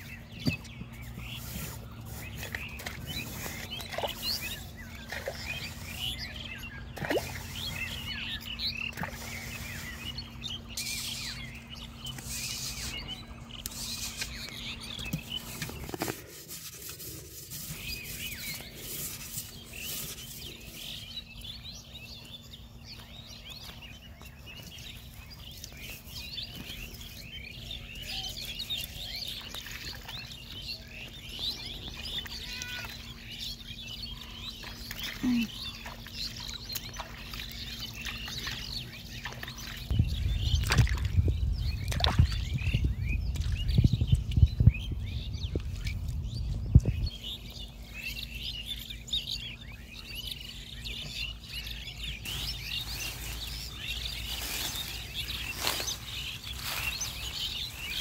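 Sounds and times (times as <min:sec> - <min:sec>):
small birds chirping: 0:00.0 - 0:58.0
wet mud scraping: 0:00.1 - 0:21.1, 0:52.1 - 0:58.0.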